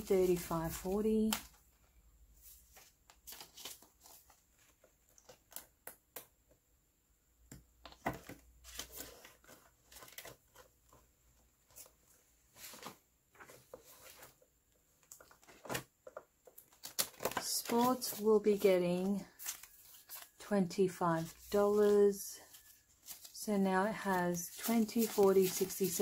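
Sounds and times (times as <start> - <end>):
plastic envelopes rustling: 2.5 - 5.7, 8.1 - 11.0, 11.6 - 20.5, 21.1 - 26.0.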